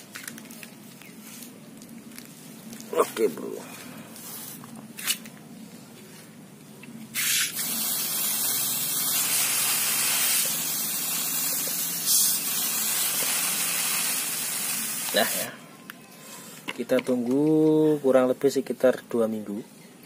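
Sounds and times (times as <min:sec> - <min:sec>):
water spraying: 0:07.2 - 0:15.5.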